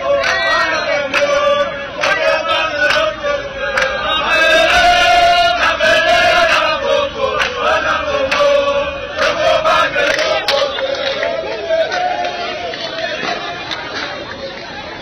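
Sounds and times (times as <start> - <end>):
crowd singing a chant: 0.0 - 13.5.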